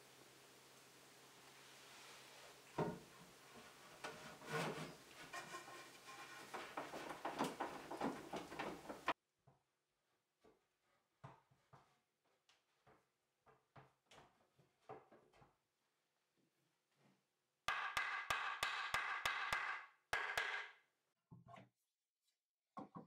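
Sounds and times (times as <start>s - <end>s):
background hiss: 0.0s - 5.2s
wood knocking and rubbing on wood: 4.0s - 9.2s, 17.7s - 20.7s.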